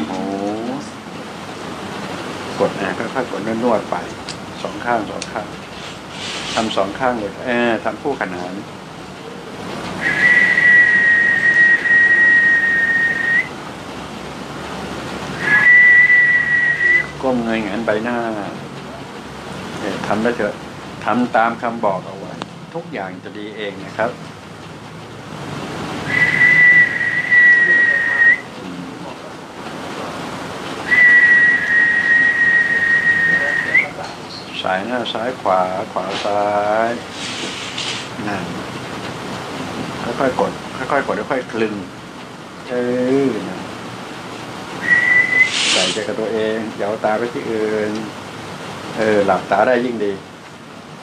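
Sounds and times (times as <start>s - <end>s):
steady hiss: 0.0s - 51.0s
person whistling a high note: 10.0s - 13.5s, 15.4s - 17.2s, 26.1s - 28.5s, 30.9s - 34.0s, 44.8s - 46.0s.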